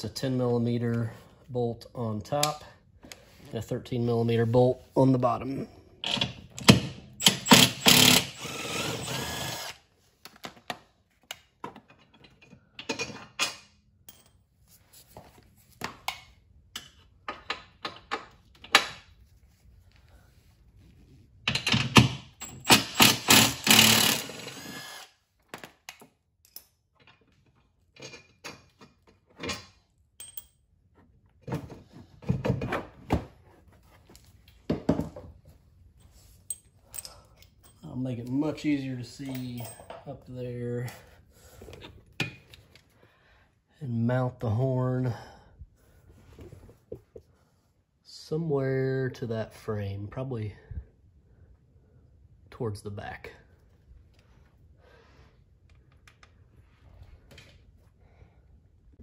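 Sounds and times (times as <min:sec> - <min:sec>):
impact wrench running: 0:06.7 - 0:09.8, 0:22.4 - 0:25.2
clinks and knocks of parts: 0:10.2 - 0:14.6, 0:15.6 - 0:19.2, 0:21.4 - 0:24.6, 0:25.4 - 0:32.8, 0:36.0 - 0:41.0.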